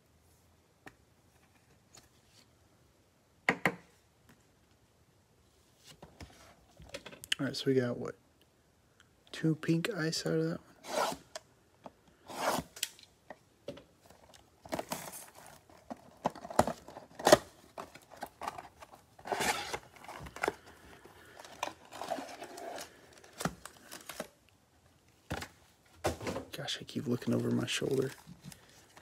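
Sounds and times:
foil card packs handled: 14.0 - 24.4, 27.0 - 29.0.

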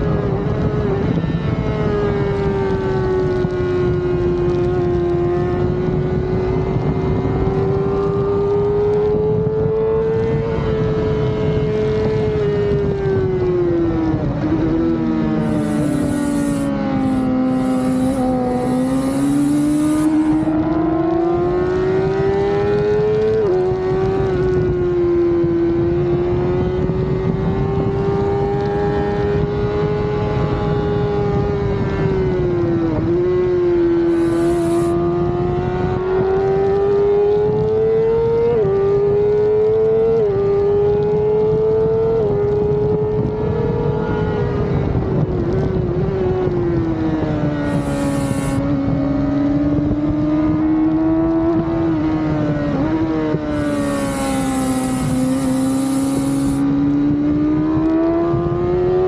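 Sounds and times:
motorcycle engine racing: 0.0 - 59.0
wind noise rushing: 15.0 - 22.0, 34.0 - 35.1, 47.6 - 49.2, 53.3 - 57.3.

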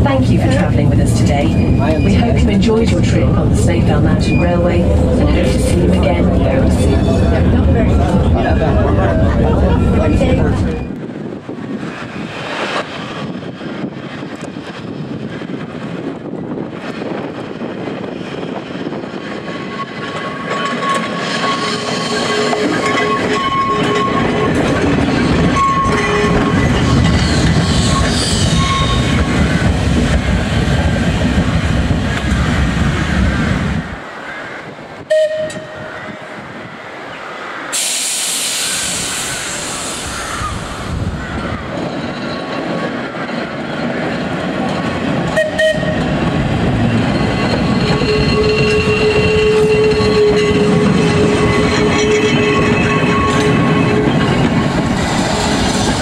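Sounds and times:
tram running on rails: 0.0 - 56.0
hiss: 37.7 - 41.0.

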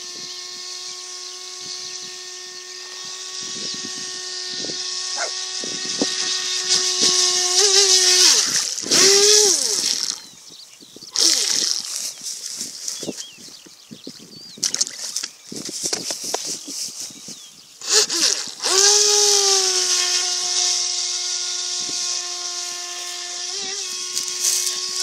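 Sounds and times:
electric boat motor whining: 0.0 - 10.4, 17.8 - 25.0.

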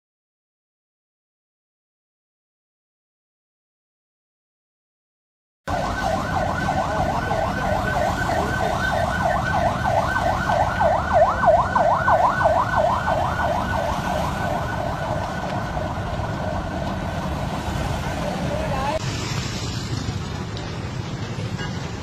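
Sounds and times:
siren yelping: 5.7 - 18.0.

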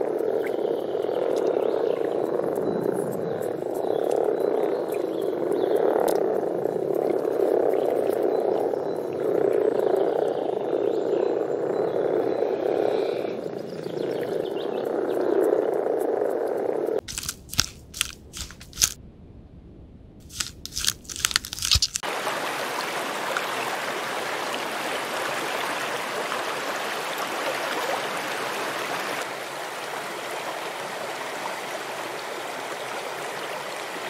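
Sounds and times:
frogs calling: 0.0 - 18.9
sharp clicks and crunches: 17.0 - 19.0, 20.2 - 22.0.

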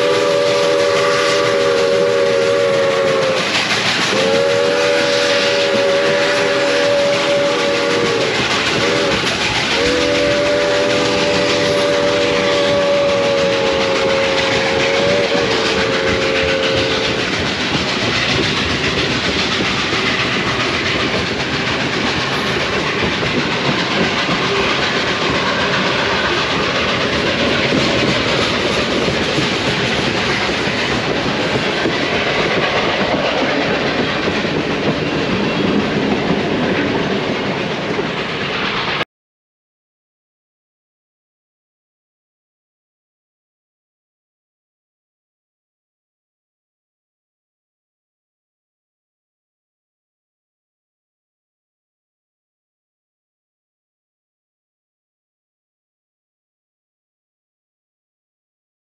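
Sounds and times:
distant steam whistle: 0.0 - 35.8
railroad wheels clattering: 0.0 - 39.0.

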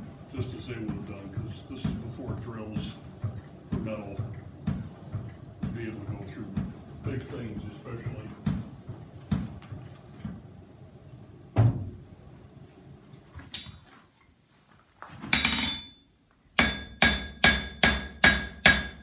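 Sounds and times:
hammer ringing on anvil: 15.3 - 19.0.

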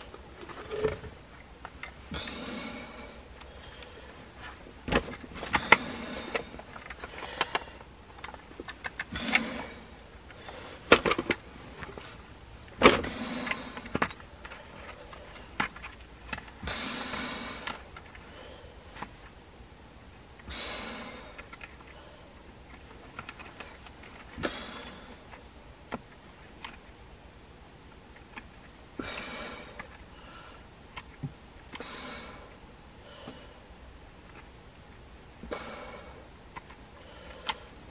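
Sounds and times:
person breathing and sniffing: 2.1 - 4.6, 13.0 - 15.6, 16.6 - 19.0, 24.4 - 25.4.

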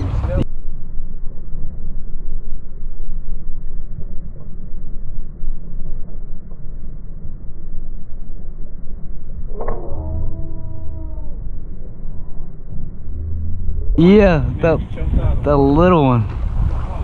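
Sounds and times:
boat engine low rumble: 0.0 - 17.0
sharp click: 9.5 - 10.0.

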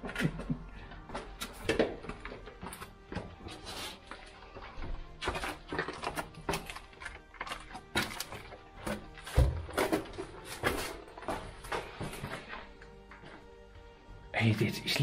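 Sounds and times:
footsteps on stairs: 0.0 - 7.0, 7.7 - 13.9
small knocks and scrapes: 5.2 - 13.3.

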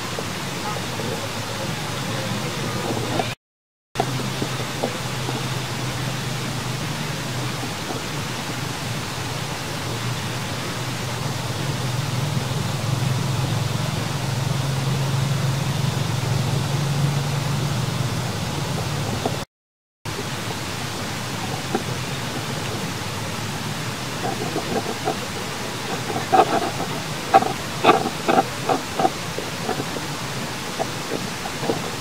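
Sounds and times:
outdoor background hiss: 4.0 - 19.4, 20.1 - 32.0.

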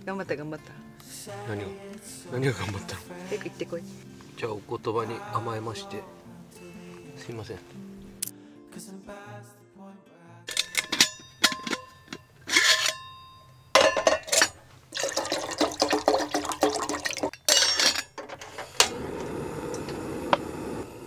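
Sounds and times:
steel pot clattering: 10.5 - 18.9
water pouring into pot: 14.9 - 17.4
gas burner hissing: 17.6 - 21.0
gas stove igniter click: 18.7 - 20.8.

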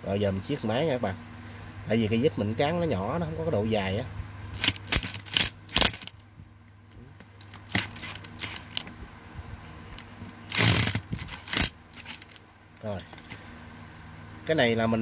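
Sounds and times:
metal parts clicking and rattling: 4.6 - 6.2, 7.4 - 8.9, 10.5 - 13.4.

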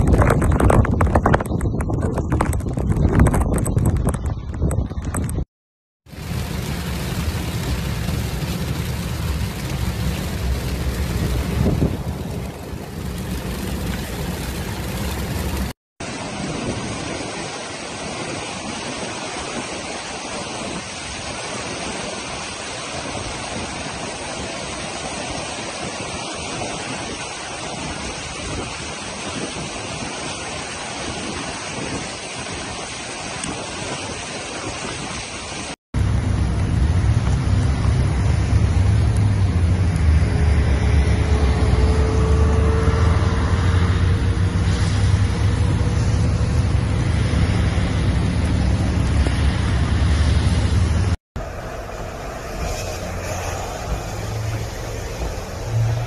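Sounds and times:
torrent of water roaring: 6.0 - 56.0
heavy rain on car: 6.1 - 17.7, 50.8 - 56.0
road rumble inside car: 6.2 - 15.7, 36.0 - 56.0.

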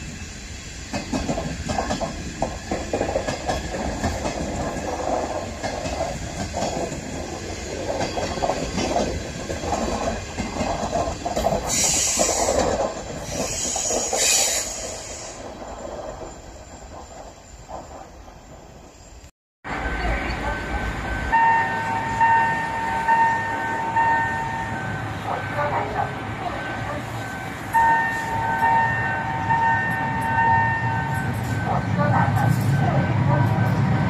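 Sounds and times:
train wheels clattering: 0.8 - 18.7
high hissing squeal: 11.6 - 12.6, 13.2 - 19.3.

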